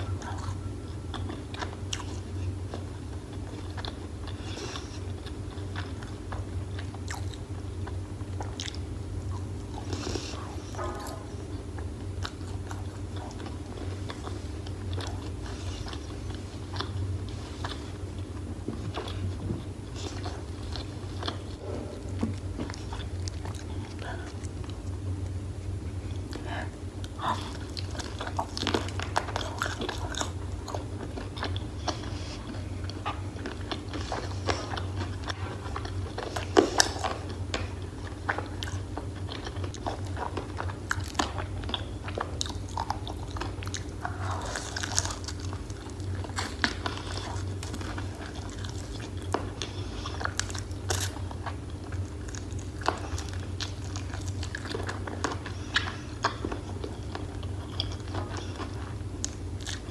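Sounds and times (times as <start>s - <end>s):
wet chewing: 0.0s - 59.9s
crunching fried chicken: 22.3s - 59.9s.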